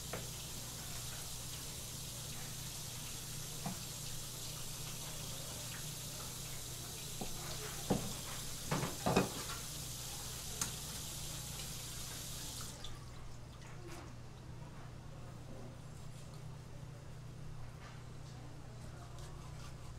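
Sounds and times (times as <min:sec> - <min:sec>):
tap running water: 0:00.0 - 0:13.0.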